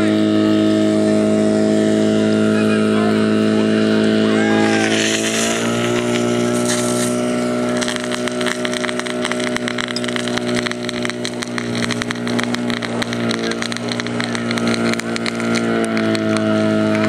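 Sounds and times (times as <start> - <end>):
pump engine running: 0.0 - 17.0
rough crackle: 4.6 - 17.0.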